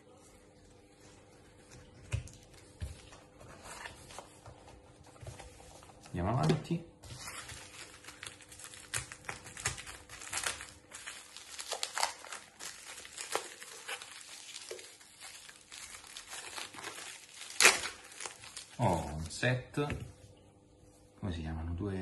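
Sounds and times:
plastic bag crinkling: 0:07.2 - 0:19.3.

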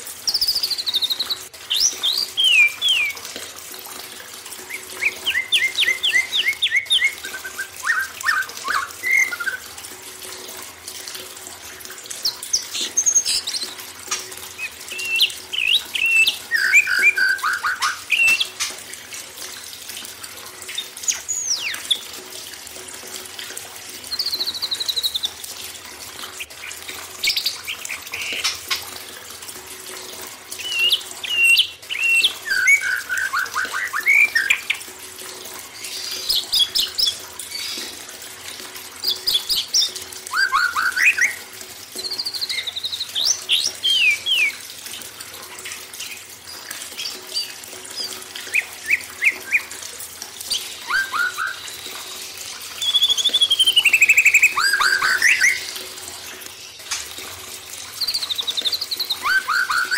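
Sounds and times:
running water: 0:00.0 - 0:59.9
songbirds singing: 0:00.2 - 0:03.4, 0:04.6 - 0:09.7, 0:12.1 - 0:18.7, 0:26.3 - 0:28.9, 0:30.5 - 0:34.8, 0:39.0 - 0:44.6, 0:50.4 - 0:55.8, 0:57.9 - 0:59.9.

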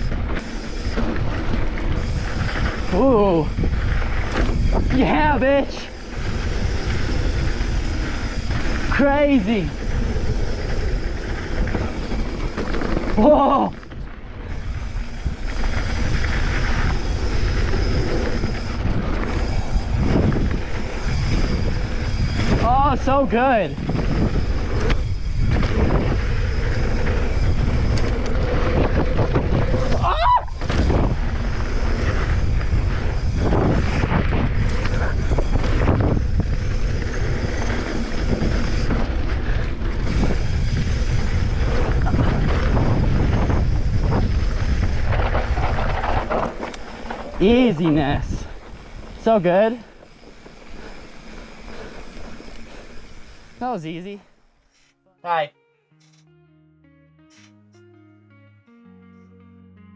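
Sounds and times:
bike rattling clatter: 0:00.0 - 0:53.6
wind buffeting microphone: 0:00.0 - 0:53.6
tyres rolling over dirt and gravel: 0:30.7 - 0:53.6.

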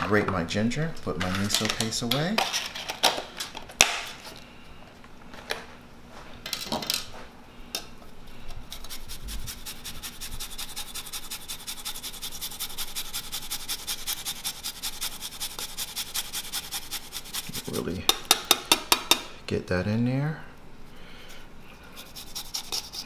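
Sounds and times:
ginger rasping on grater: 0:08.7 - 0:18.0, 0:22.0 - 0:23.0.

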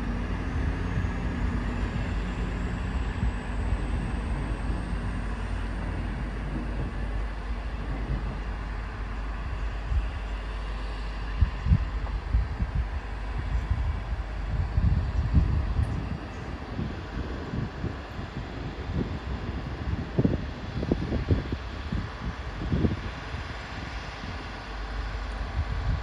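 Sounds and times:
diesel train engines rumbling: 0:00.0 - 0:26.0
wind buffeting microphone: 0:00.0 - 0:26.0.

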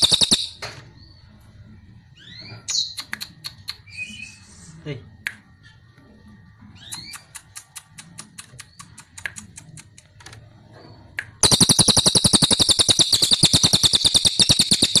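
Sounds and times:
jay calling with dry clicks: 0:11.4 - 0:15.0.

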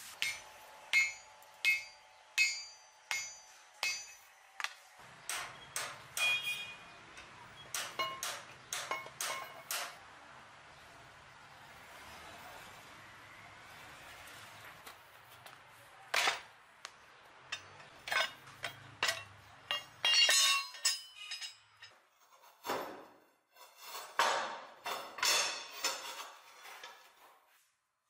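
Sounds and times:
steel strips clinking together: 0:05.2 - 0:10.0, 0:17.5 - 0:22.6, 0:23.6 - 0:27.0.

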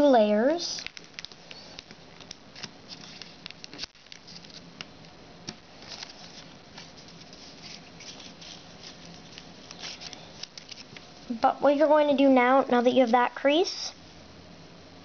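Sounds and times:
foil paper crinkling: 0:00.6 - 0:04.8, 0:05.7 - 0:11.2.

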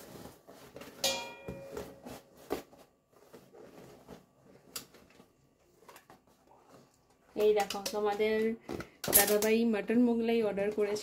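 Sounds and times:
ringing clink: 0:01.0 - 0:01.7.

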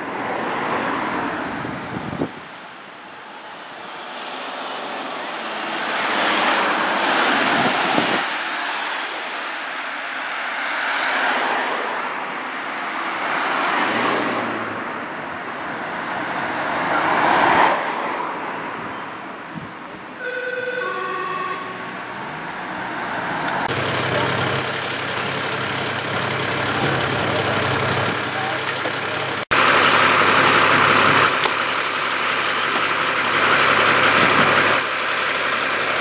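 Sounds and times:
road noise: 0:00.0 - 0:36.0
emergency vehicle sirens: 0:18.8 - 0:36.0
heavy engine idling: 0:23.7 - 0:36.0.

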